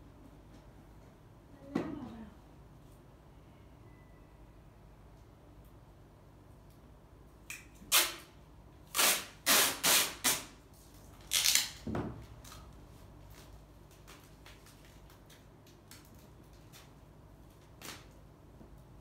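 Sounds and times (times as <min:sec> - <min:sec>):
tape ripping off roll: 0:07.9 - 0:08.3, 0:08.9 - 0:10.5, 0:11.2 - 0:11.8.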